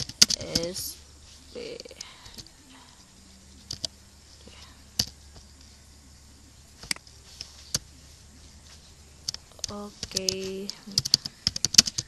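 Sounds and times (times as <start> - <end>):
computer keys clicking: 0.0 - 0.9, 3.6 - 5.7, 9.2 - 12.0
faint low hum: 0.0 - 12.0.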